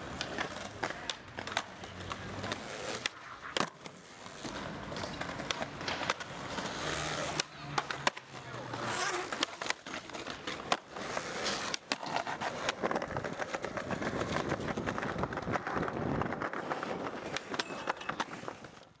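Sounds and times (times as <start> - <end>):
skateboard clacks and knocks: 0.0 - 19.0
skateboard wheels rolling on concrete: 0.0 - 19.0
skateboard sliding on metal rail: 8.7 - 18.8.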